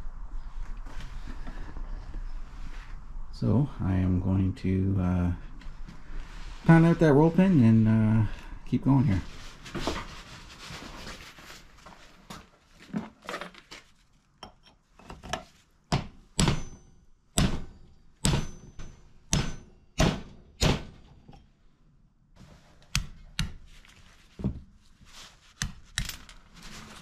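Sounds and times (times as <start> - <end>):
hammer striking metal punch: 15.9 - 21.0.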